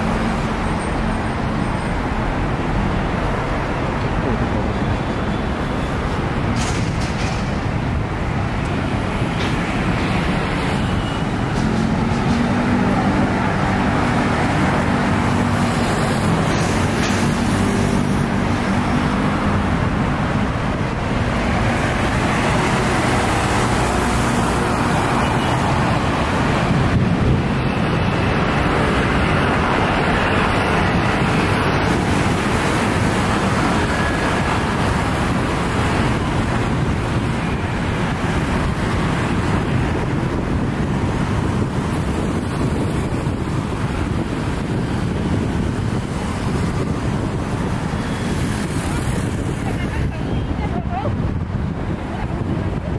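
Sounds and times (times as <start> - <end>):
road traffic: 0.0 - 52.9.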